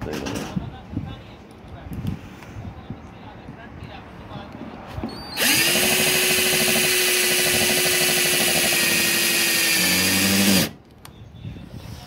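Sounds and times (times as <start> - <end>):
electric drill whining: 5.3 - 10.8.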